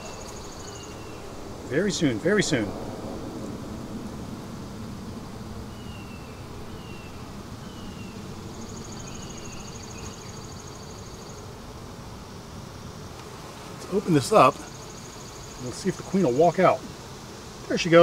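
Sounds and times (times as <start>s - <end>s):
honeybees buzzing: 0.0s - 18.0s.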